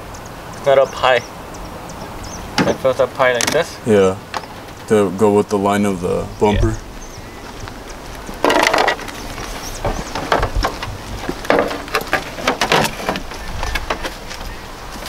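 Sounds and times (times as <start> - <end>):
plastic crackling and scraping: 8.2 - 15.0.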